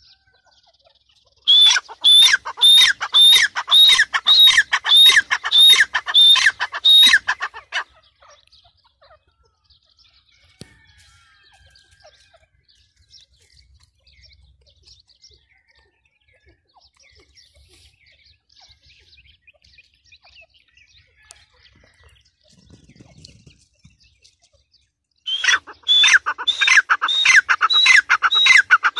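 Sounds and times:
faint bird chirps: 0.0s - 28.9s
francolin harsh repeated calls: 1.4s - 8.0s, 25.3s - 28.9s.

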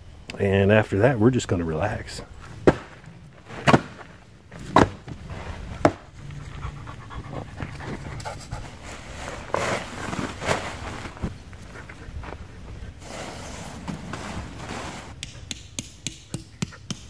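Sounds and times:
dog panting and huffing: 6.2s - 9.3s.

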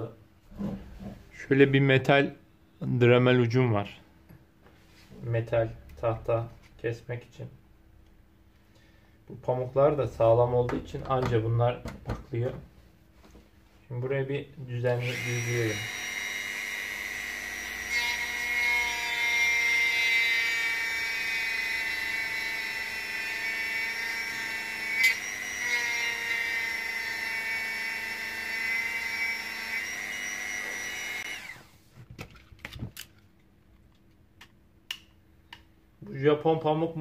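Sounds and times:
rotary tool whining: 15.0s - 31.8s.

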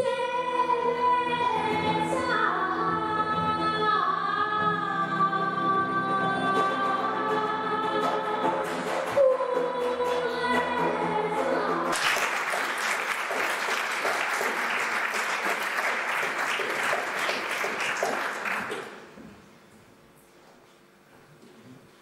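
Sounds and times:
audience applause: 11.9s - 19.2s.

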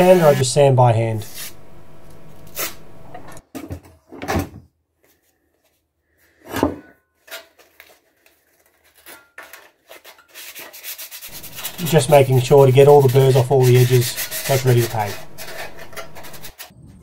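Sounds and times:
sandpaper rubbing metal: 0.0s - 1.6s, 9.9s - 16.7s.

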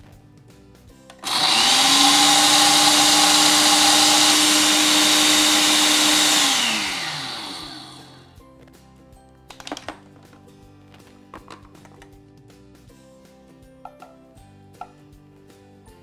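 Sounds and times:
grinder motor grinding coffee beans: 1.2s - 8.3s.

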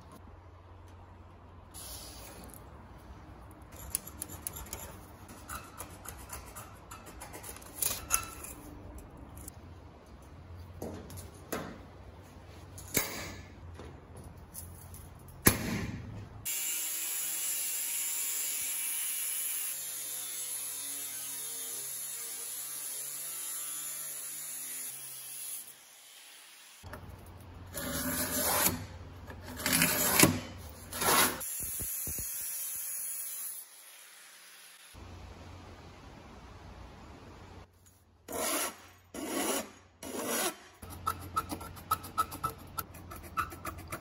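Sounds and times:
angle grinder cutting steel: 16.5s - 26.8s.

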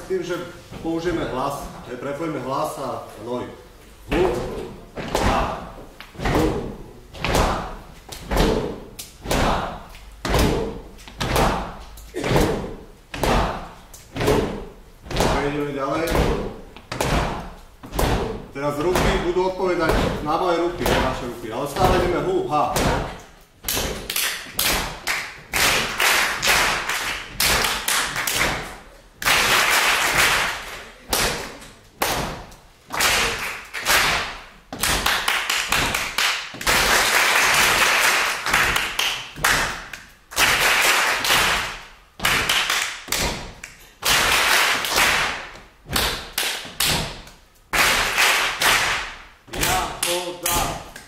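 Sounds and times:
person clapping rhythms: 22.8s - 51.0s
group clapping back: 23.7s - 32.3s, 32.9s - 51.0s.

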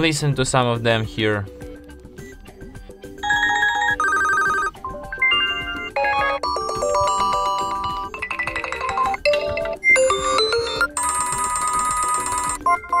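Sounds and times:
phone ringtone melodies: 3.1s - 13.0s.

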